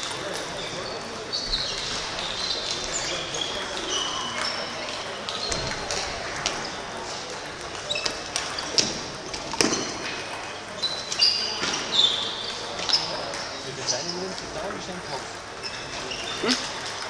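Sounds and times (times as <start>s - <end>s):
murmur of voices: 0.0s - 17.0s
table tennis balls clicking: 2.0s - 11.8s.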